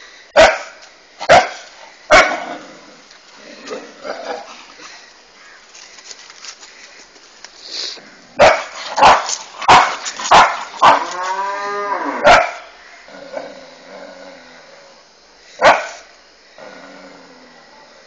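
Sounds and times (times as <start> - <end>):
dog barking: 0.4 - 2.4, 8.4 - 11.0, 12.2 - 12.7, 15.6 - 16.0.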